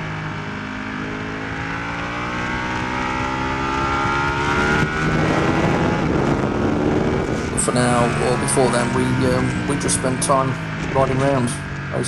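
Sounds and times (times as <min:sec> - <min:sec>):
motorcycle engine accelerating: 0:00.0 - 0:12.0
wind rush: 0:03.8 - 0:11.9.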